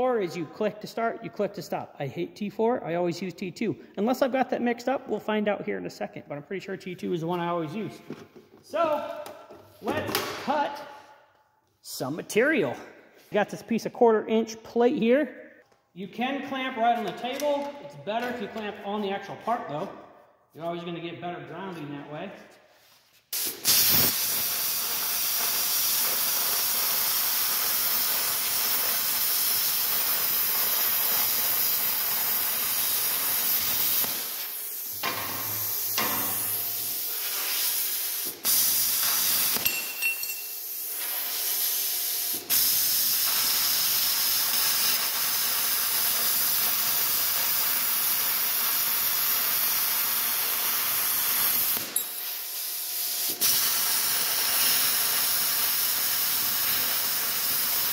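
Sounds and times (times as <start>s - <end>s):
plasma cutter torch hissing: 23.3s - 39.7s, 40.4s - 57.9s.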